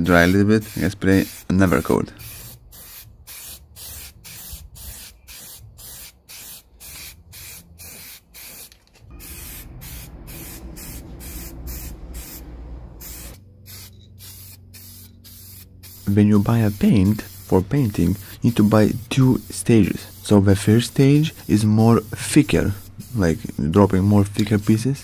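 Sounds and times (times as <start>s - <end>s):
aerosol spray hissing: 0.0s - 25.0s.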